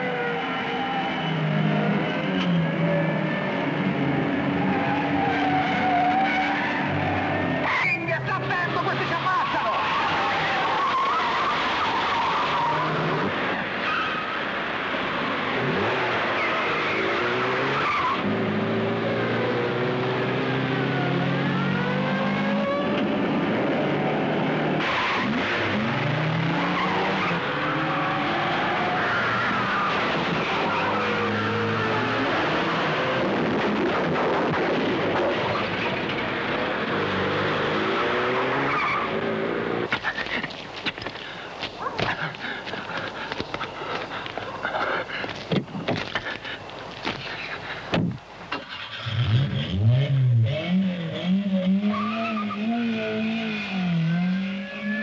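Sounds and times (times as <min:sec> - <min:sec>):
car engines driven fast: 0:00.0 - 0:55.0
car engine accelerating: 0:15.5 - 0:39.9, 0:48.5 - 0:55.0.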